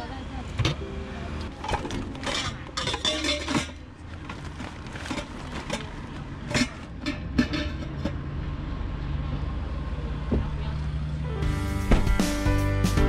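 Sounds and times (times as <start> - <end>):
plastic bag rustling: 1.6 - 6.8
items knocking and clinking: 1.6 - 8.1.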